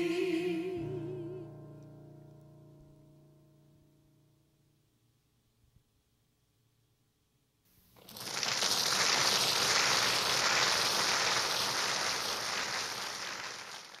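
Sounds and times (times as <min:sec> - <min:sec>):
audience applauding: 0:08.0 - 0:14.0.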